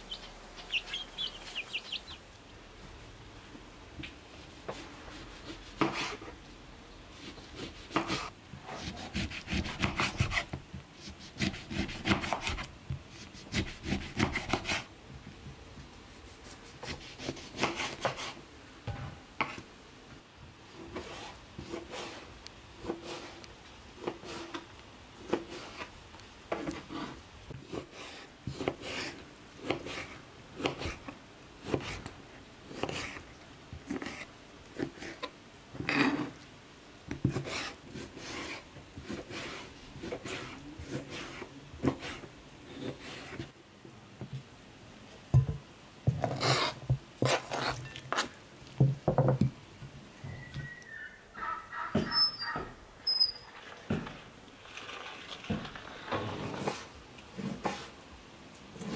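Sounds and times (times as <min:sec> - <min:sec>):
knife cutting on cutting board: 0:07.2 - 0:12.7.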